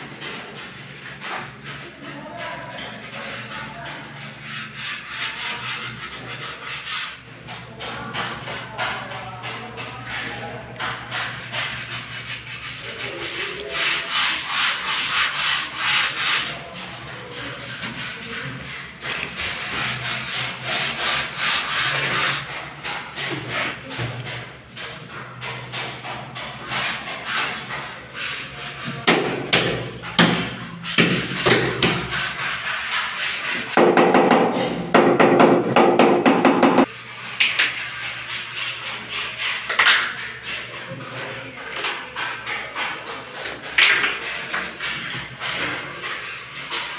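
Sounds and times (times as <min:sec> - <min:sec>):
hand tool scraping tile: 0:00.0 - 0:46.9.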